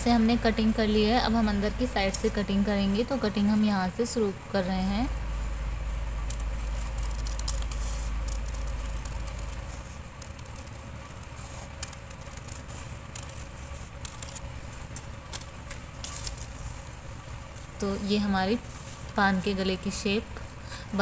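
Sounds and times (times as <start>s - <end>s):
shears snipping paper: 6.2s - 16.8s
paper rustling: 6.2s - 20.6s.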